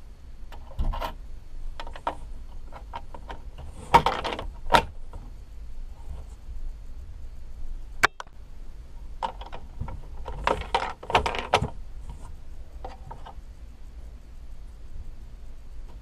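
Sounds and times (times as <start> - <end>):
plastic clicks and clacks: 9.2 - 11.8.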